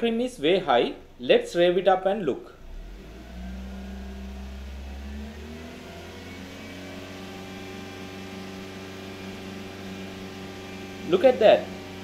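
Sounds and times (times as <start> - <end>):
car engine revving then idling: 2.6 - 12.0.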